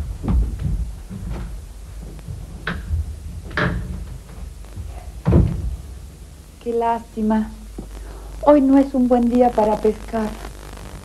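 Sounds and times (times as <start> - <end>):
footsteps: 0.0 - 6.6, 7.7 - 8.1
door opening and shutting: 2.2 - 6.0.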